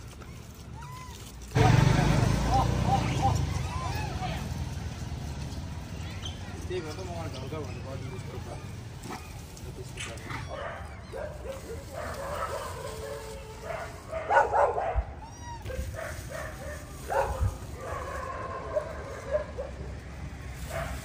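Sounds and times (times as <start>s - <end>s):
dogs barking and yipping: 0.0s - 21.0s.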